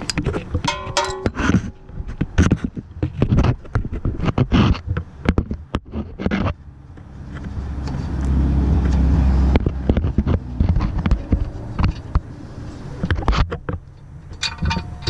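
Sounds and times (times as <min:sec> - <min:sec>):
metal clicks and knocks: 0:00.0 - 0:07.1, 0:13.0 - 0:15.0
microphone handling rumble: 0:00.0 - 0:15.0.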